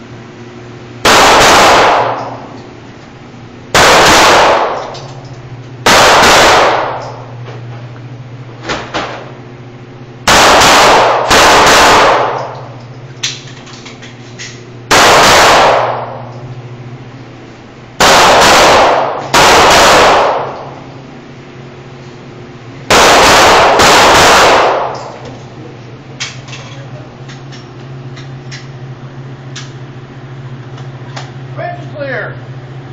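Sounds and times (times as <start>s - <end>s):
pistol shots indoors: 1.0s - 2.6s, 3.7s - 5.2s, 5.8s - 7.3s, 10.2s - 13.5s, 14.4s - 16.4s, 18.0s - 20.8s, 22.9s - 25.3s.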